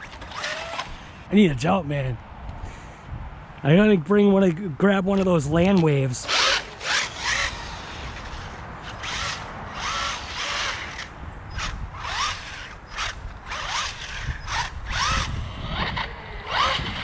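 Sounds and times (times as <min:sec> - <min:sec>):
rc car motor whining: 0:00.0 - 0:01.3, 0:06.2 - 0:17.0
tires screeching: 0:05.2 - 0:17.0.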